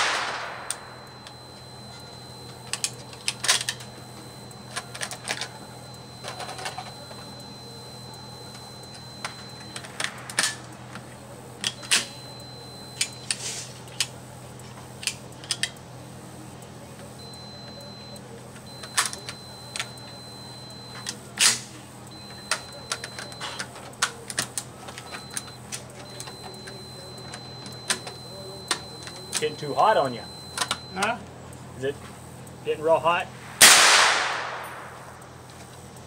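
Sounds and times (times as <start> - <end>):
faint steady high tone: 0.2 - 10.0, 10.9 - 13.3, 16.8 - 21.2, 22.0 - 31.2.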